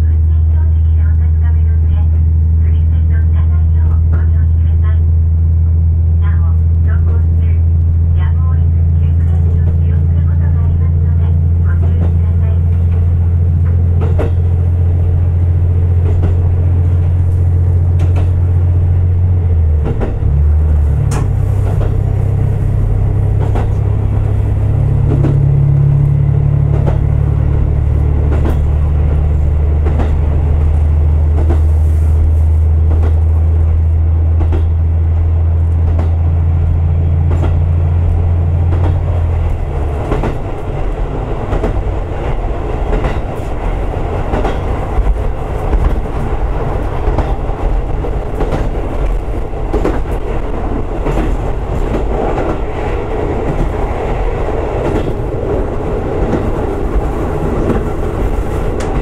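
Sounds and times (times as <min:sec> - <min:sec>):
diesel engine drone: 0:00.0 - 0:59.0
wheels clicking over rail joints: 0:26.6 - 0:31.7, 0:35.6 - 0:59.0.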